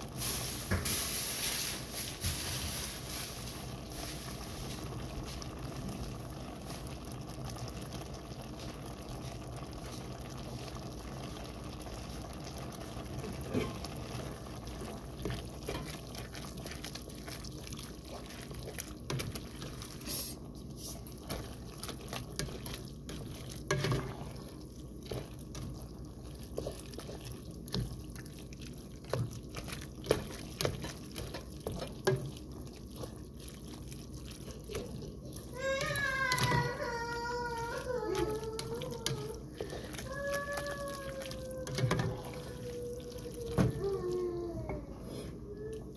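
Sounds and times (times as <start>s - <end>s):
pan bubbling and hissing: 0.0s - 45.9s.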